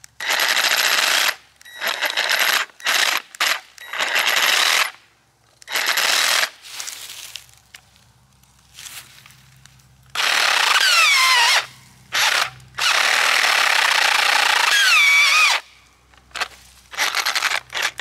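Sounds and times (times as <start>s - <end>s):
reciprocating saw motor bursts: 0.2s - 5.0s, 5.6s - 6.6s, 10.1s - 18.0s.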